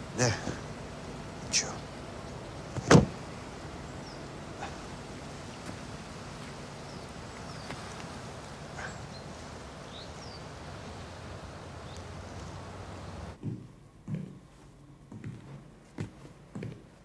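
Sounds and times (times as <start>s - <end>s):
faint low hum: 0.0s - 16.8s
steady outdoor hush: 0.0s - 17.0s
high bird chirps: 8.8s - 10.5s.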